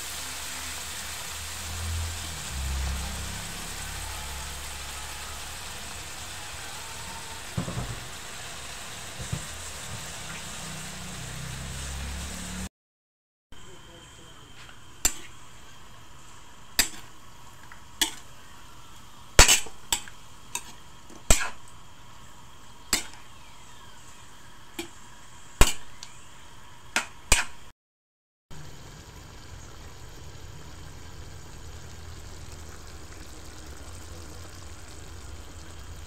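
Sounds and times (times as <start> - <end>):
chicken simmering hiss: 0.0 - 12.7, 28.6 - 36.0
metal spatula scraping a wok: 15.0 - 15.4, 18.0 - 18.3, 19.4 - 21.6, 22.9 - 23.2, 27.3 - 27.6.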